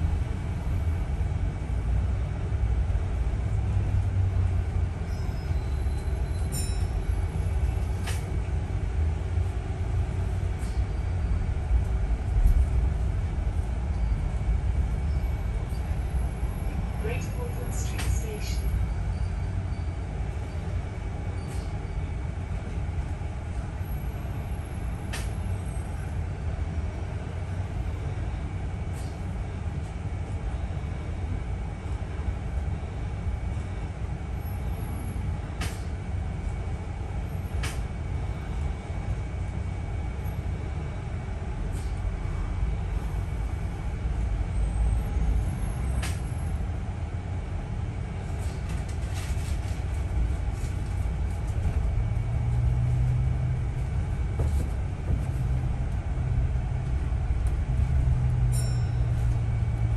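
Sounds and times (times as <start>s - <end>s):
bus engine and road rumble: 0.0s - 59.9s
bus body rattling clicks: 7.9s - 8.4s, 25.0s - 25.5s, 35.6s - 35.9s, 37.5s - 37.8s, 46.0s - 46.3s.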